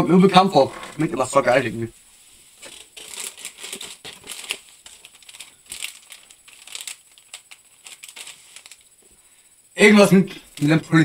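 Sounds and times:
plastic snack bag crinkling: 0:02.6 - 0:09.0, 0:10.4 - 0:11.0.

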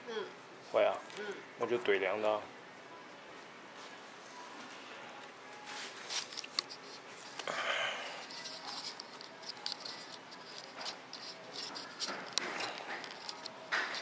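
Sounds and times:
rustling handling sounds: 0:03.3 - 0:07.5, 0:08.2 - 0:14.0.

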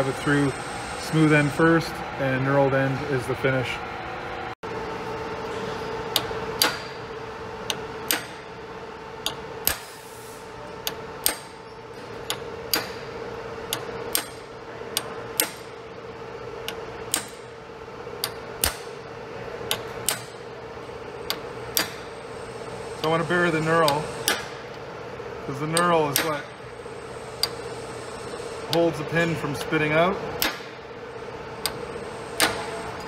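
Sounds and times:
steady hum: 0:00.0 - 0:33.0
hammer tapping pin punch: 0:07.7 - 0:08.4, 0:10.8 - 0:11.5, 0:13.7 - 0:14.4, 0:15.0 - 0:15.7, 0:16.6 - 0:17.4, 0:21.3 - 0:22.1, 0:25.7 - 0:26.4.

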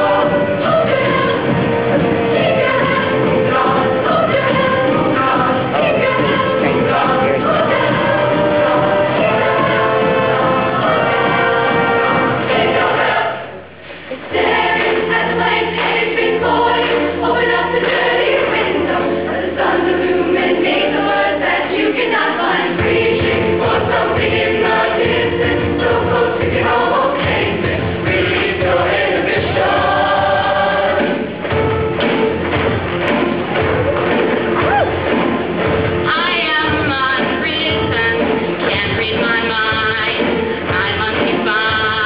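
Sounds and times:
choir singing in harmony: 0:00.0 - 0:32.4
instrumental accompaniment: 0:00.0 - 0:42.0
steady beat: 0:22.7 - 0:42.0.

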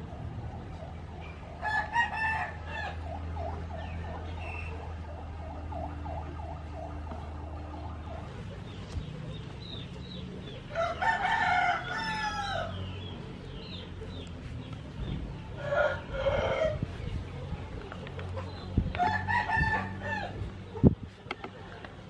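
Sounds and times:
roosters crowing: 0:01.5 - 0:04.5, 0:10.6 - 0:13.8, 0:15.4 - 0:17.1, 0:18.9 - 0:20.5.

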